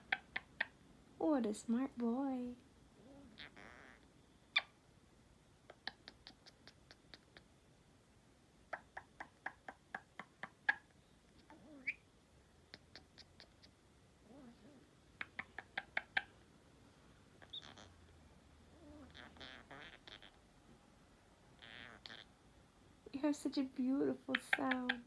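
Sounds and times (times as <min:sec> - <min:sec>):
parrot chirps: 0:00.0 - 0:00.8, 0:03.2 - 0:04.8, 0:05.7 - 0:07.5, 0:08.7 - 0:12.1, 0:12.7 - 0:14.5, 0:15.2 - 0:16.4, 0:17.4 - 0:18.0, 0:18.8 - 0:20.4, 0:21.6 - 0:22.3, 0:24.3 - 0:25.0
parrot clicking: 0:15.2 - 0:16.3, 0:24.3 - 0:25.0
parrot low warble: 0:18.7 - 0:20.4.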